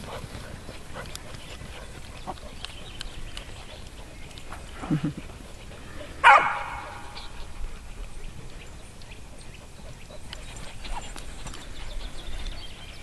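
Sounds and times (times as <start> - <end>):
dogs running over sand and grass: 0.0 - 8.4
dog barking: 6.2 - 7.2.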